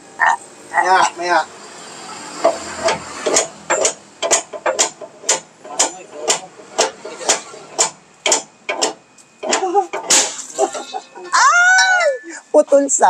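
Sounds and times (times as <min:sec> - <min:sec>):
hammer striking truck wheel: 0:02.4 - 0:11.1.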